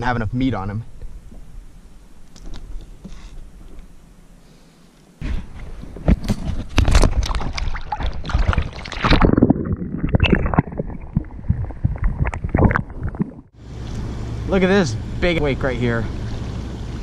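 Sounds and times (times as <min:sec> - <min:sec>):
water splashing and sloshing: 0:05.4 - 0:14.0, 0:16.0 - 0:17.0
underwater gurgling: 0:06.8 - 0:13.6.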